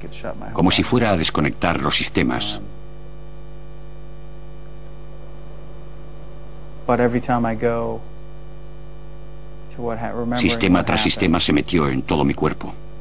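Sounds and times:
man speaking: 0.0 - 2.7, 9.8 - 12.8
electrical mains hum: 0.0 - 13.0.

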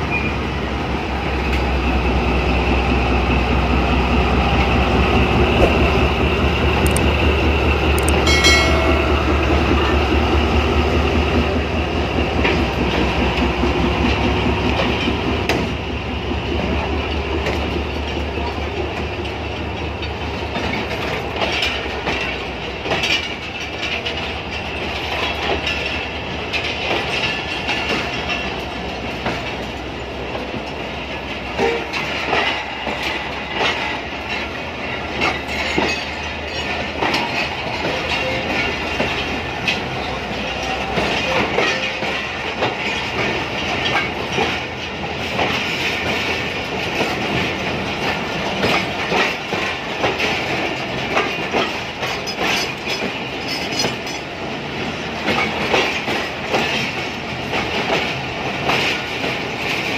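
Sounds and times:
diesel locomotive engine drone: 0.0 - 59.9
train wheels clacking over rail joints: 0.1 - 59.9
high-pitched tone: 8.0 - 9.9.

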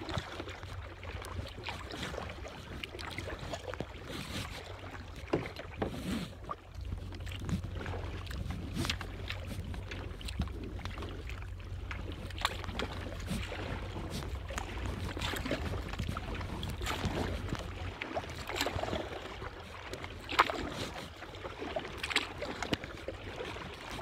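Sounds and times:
paddle splashing in water: 0.0 - 24.0
low wind rumble on microphone: 5.7 - 21.2.

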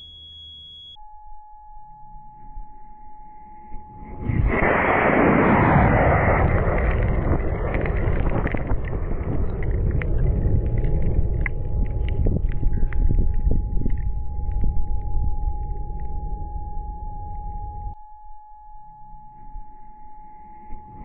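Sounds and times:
rocket motor rushing: 4.1 - 12.4
exhaust crackles: 4.3 - 14.2.

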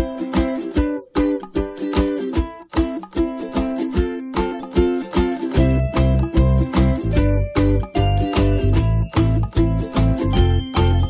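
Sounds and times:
upbeat plucked-string music: 0.0 - 11.0
bass part: 5.6 - 11.0.

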